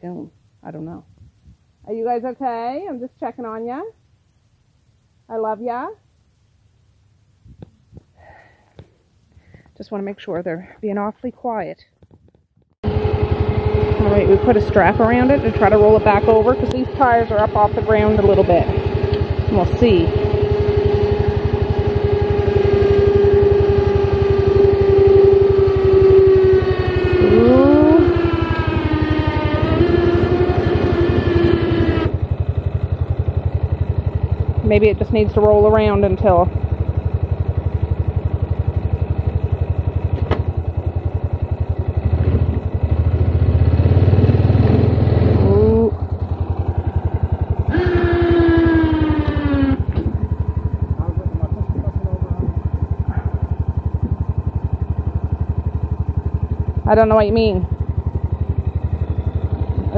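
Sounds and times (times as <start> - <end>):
vehicle engine running: 12.6 - 59.9
loud squeal falling in pitch: 22.4 - 32.0, 47.7 - 50.2.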